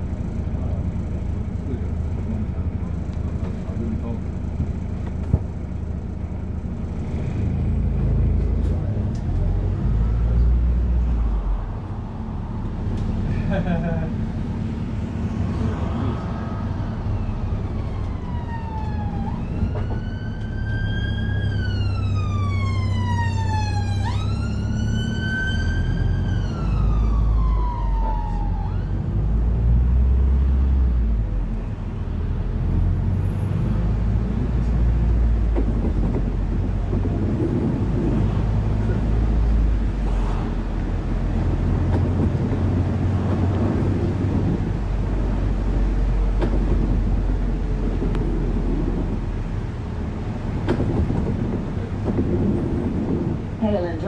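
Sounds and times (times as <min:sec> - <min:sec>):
bus drivetrain rumble: 0:00.0 - 0:54.0
road noise: 0:00.0 - 0:54.0
siren wailing: 0:16.3 - 0:29.2.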